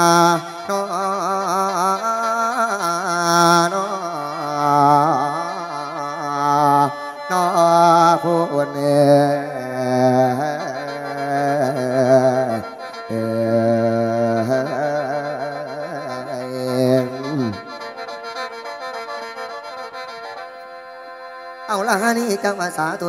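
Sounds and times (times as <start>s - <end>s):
person singing melismatic vocal line: 3.8s - 18.5s, 21.7s - 23.0s.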